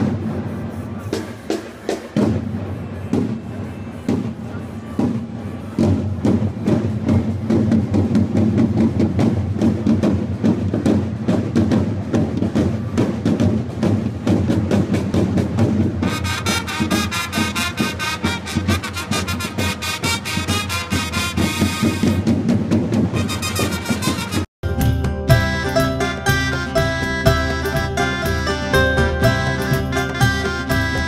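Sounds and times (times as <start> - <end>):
marching side drums: 0.0 - 31.0
high-pitched wind instrument melody: 16.0 - 22.3, 23.2 - 31.0.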